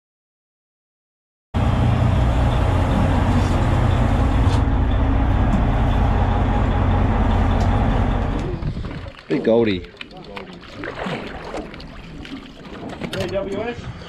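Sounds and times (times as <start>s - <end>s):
boat engine drone: 1.6s - 9.2s.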